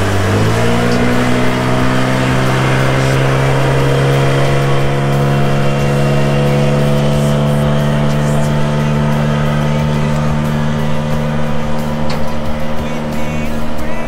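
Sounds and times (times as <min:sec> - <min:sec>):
speedboat engine running: 0:00.0 - 0:14.0.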